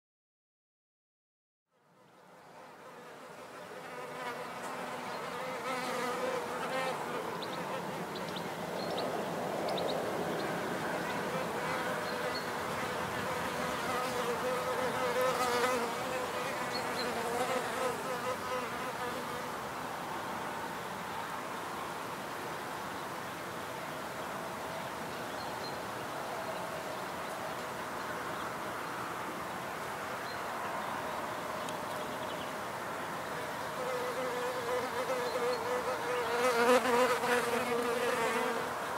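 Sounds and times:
bees buzzing: 2.9s - 8.6s, 10.5s - 19.5s, 33.8s - 38.8s.

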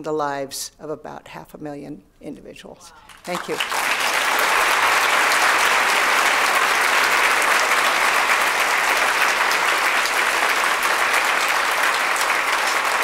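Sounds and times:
large audience applauding: 3.0s - 13.0s.

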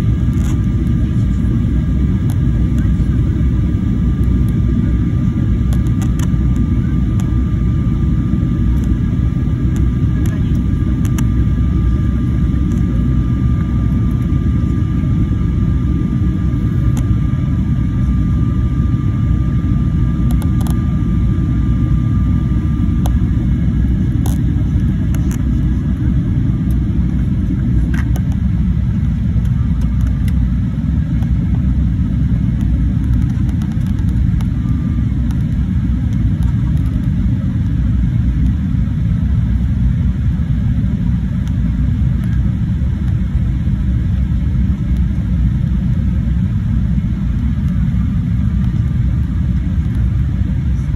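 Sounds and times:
airliner cabin rumble: 0.0s - 50.9s
faint high whine: 0.0s - 50.9s.

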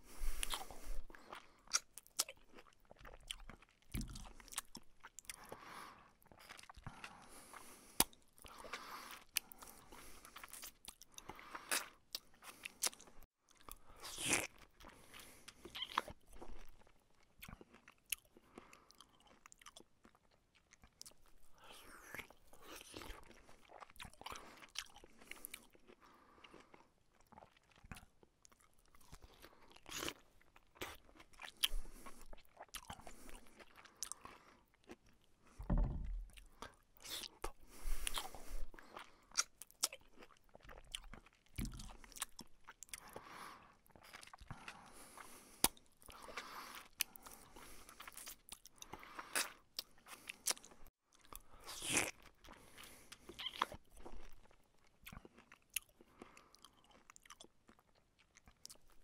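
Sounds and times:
chewing and crunching food: 0.0s - 59.0s
dull low thumps: 35.6s - 36.4s.

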